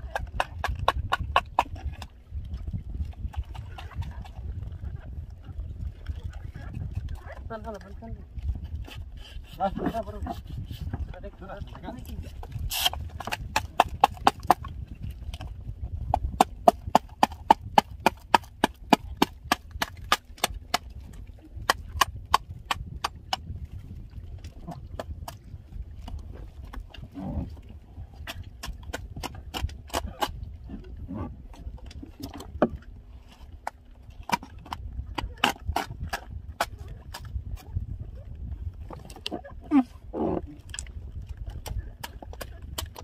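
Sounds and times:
rapid knocking on boat hull: 0.0 - 2.0, 13.1 - 14.7.

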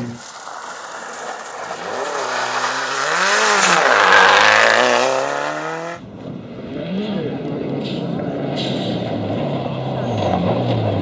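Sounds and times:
rally car engine revving: 0.0 - 11.0.

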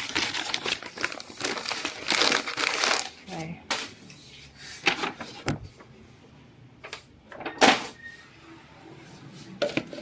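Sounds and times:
shopping bags rustling: 0.0 - 4.0.

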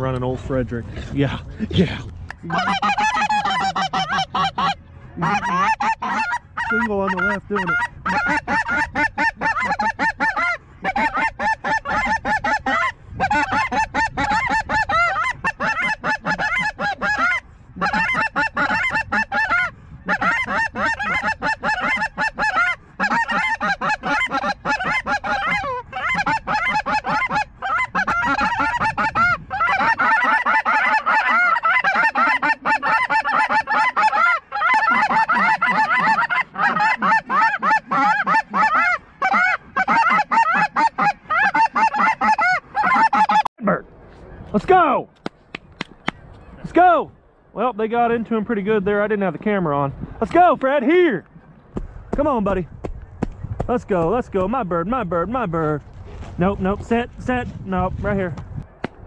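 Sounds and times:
geese honking: 2.3 - 43.5.

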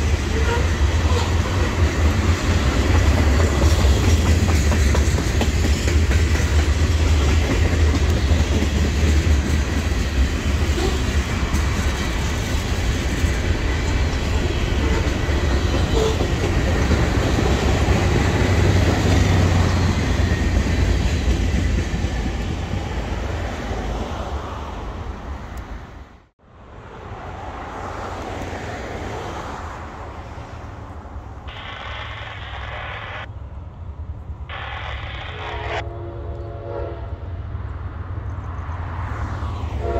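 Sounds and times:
freight train wheels rumbling on rail: 0.0 - 26.0.

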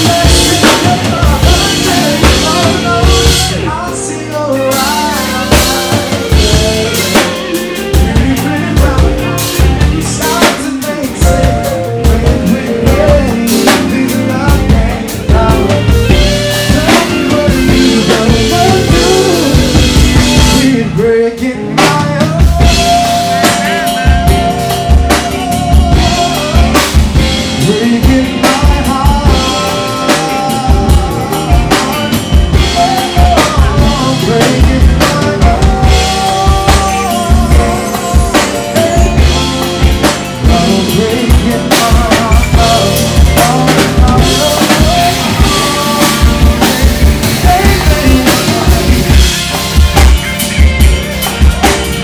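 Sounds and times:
male lead vocal: 0.0 - 50.1
drum kit beat: 0.0 - 52.0
guitar: 0.0 - 52.0.

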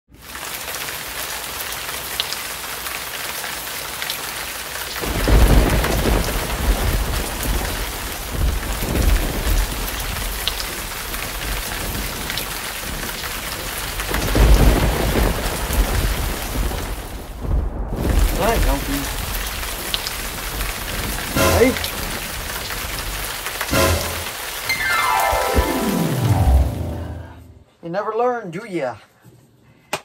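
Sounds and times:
steady rain: 0.1 - 27.3
rolling thunder: 5.0 - 27.2.

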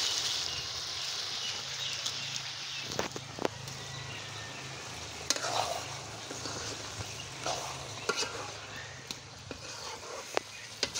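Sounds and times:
curry sizzling in a wok: 0.0 - 10.9
metal spoon scraping pan: 5.2 - 10.9.

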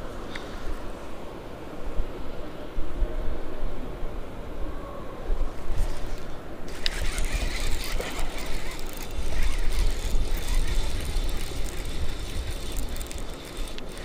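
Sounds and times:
fishing reel whirring and clicking: 6.7 - 14.0
sharp reel click: 6.7 - 14.0.

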